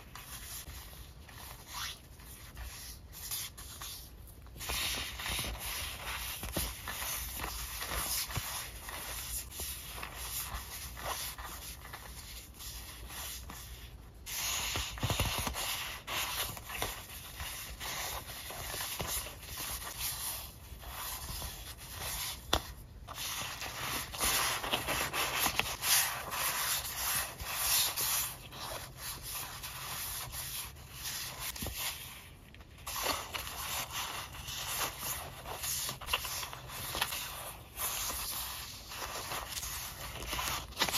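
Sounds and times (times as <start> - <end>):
paper sheets rustling: 0.0 - 40.9.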